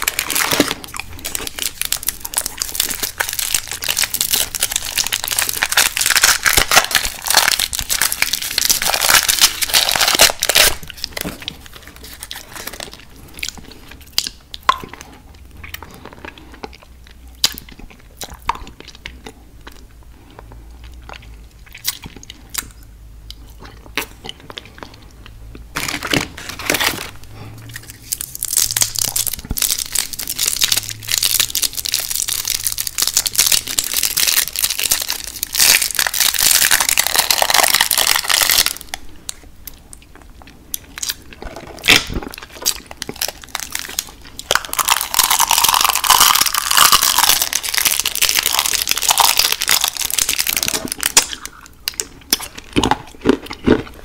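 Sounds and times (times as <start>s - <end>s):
wrapper crinkling: 0.0s - 14.3s, 25.7s - 39.0s, 41.0s - 53.0s
crunchy chewing of candy: 0.0s - 54.0s.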